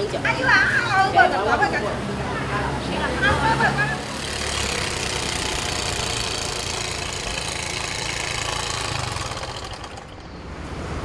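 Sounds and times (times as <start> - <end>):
road and wind noise: 0.0 - 11.0
scooter engine running: 2.8 - 10.6.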